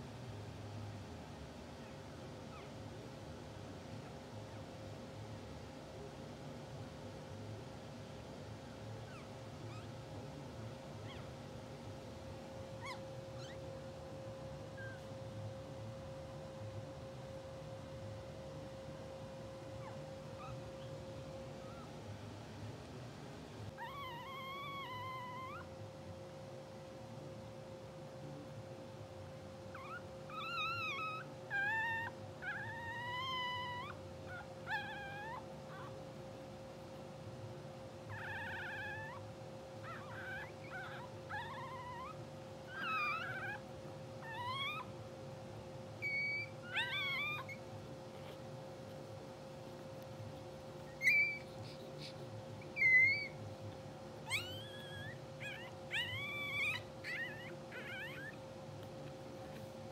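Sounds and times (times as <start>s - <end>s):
faint steady hum: 0.0s - 59.9s
puppy squeaking and crying: 9.0s - 10.0s, 11.0s - 11.4s, 12.6s - 15.2s, 19.7s - 21.9s, 23.7s - 25.7s, 29.7s - 36.0s, 38.1s - 39.2s, 39.8s - 45.0s, 46.0s - 49.0s, 49.8s - 59.7s.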